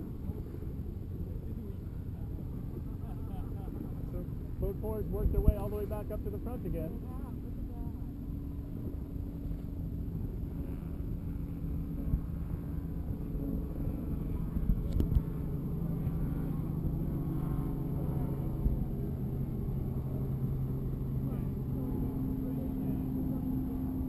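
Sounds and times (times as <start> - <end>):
motorboat engine humming: 0.0 - 24.0
water noise: 0.0 - 24.0
wind noise: 8.7 - 21.0.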